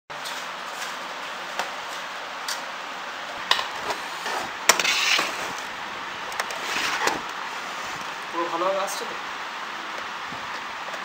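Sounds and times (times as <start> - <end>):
screwdriver scraping plastic: 3.8 - 5.6.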